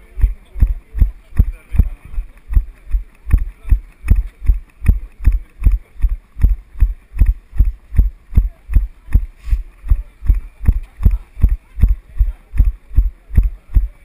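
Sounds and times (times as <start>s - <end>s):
camera thuds from running footfalls: 0.2s - 14.0s.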